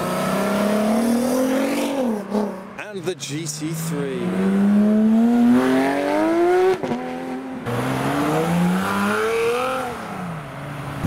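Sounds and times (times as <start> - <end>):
sports car engine revving: 0.0 - 2.8, 3.7 - 11.0
second sports car accelerating: 0.0 - 2.9, 3.7 - 11.0.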